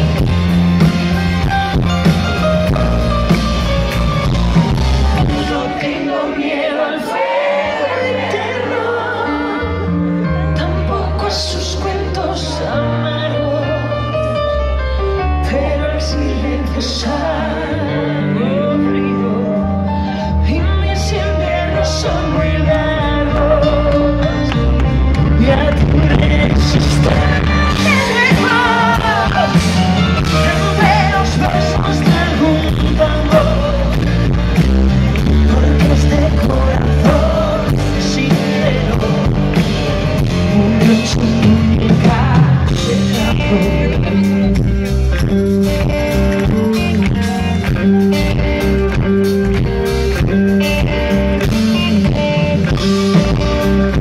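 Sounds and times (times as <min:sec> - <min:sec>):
bass guitar: 0:00.0 - 0:06.3, 0:07.5 - 0:54.0
drums: 0:00.0 - 0:06.6, 0:20.1 - 0:54.0
electric guitar: 0:00.0 - 0:54.0
female vocal singing: 0:25.3 - 0:34.0.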